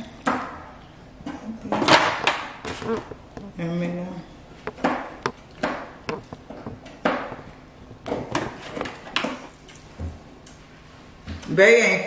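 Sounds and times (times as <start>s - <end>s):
kitchen items knocking: 1.3s - 3.6s, 4.6s - 9.5s.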